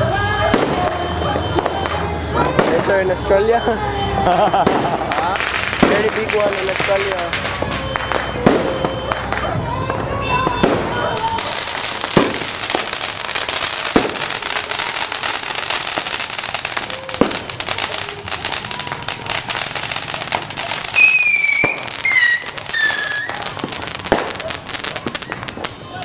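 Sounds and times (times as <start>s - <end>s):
firecrackers popping and crackling: 0.0s - 3.3s, 4.2s - 26.0s
loud bangs: 4.5s - 26.0s
high falling whistles: 21.0s - 23.4s.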